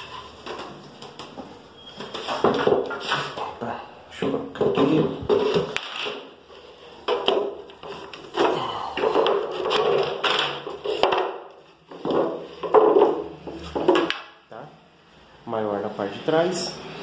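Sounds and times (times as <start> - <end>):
wooden slats clattering on tile: 0.0 - 3.6, 4.2 - 14.4.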